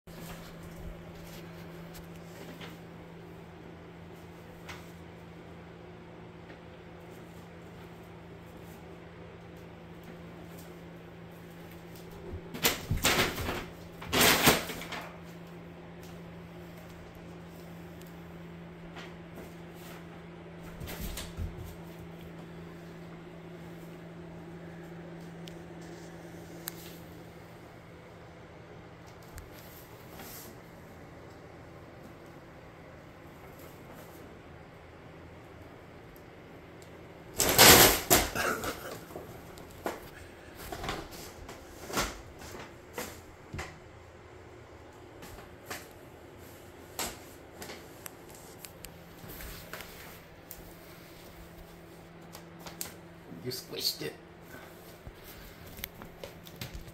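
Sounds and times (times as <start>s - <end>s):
steady low hum: 0.1s - 56.9s
paper bags rustling: 37.4s - 38.9s.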